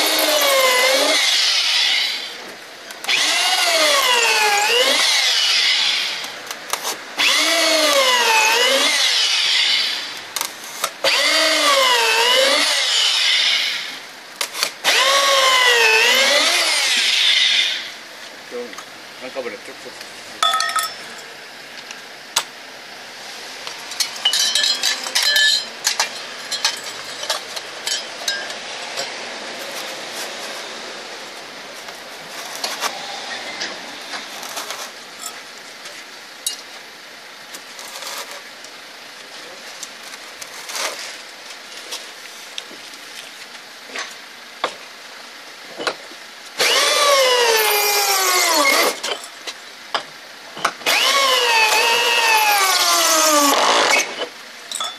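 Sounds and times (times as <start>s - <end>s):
drill boring into foam board: 0.0s - 2.3s, 3.1s - 10.1s, 10.8s - 17.9s, 46.6s - 49.0s, 50.8s - 54.3s
metal drill bits clinking: 20.4s - 21.1s.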